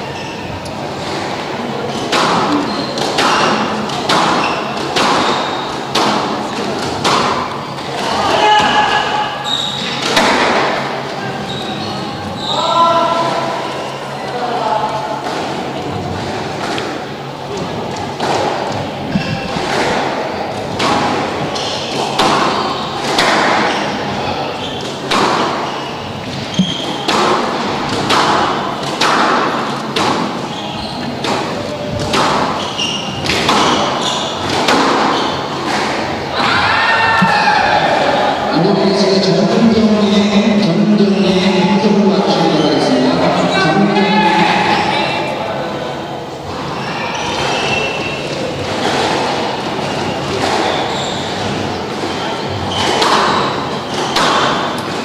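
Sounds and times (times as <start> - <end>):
shoe squeaks: 0.0 - 1.2, 1.8 - 5.9, 7.6 - 10.2, 11.2 - 14.2, 19.1 - 19.8, 21.5 - 27.9, 30.3 - 35.8, 46.7 - 55.0
squash ball hits echoing: 0.0 - 11.4, 15.1 - 38.5, 47.2 - 55.0.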